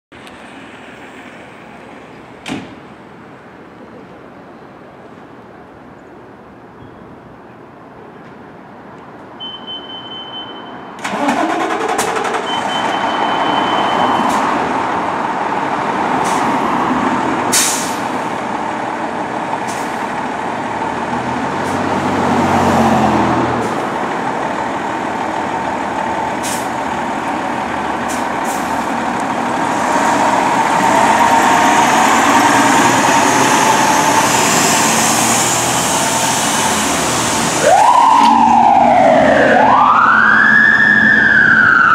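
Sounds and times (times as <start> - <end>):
long high beeps: 9.4 - 10.9, 12.3 - 14.3
diesel engine running: 14.5 - 37.6
air brake hisses: 17.5 - 18.1, 26.4 - 26.7.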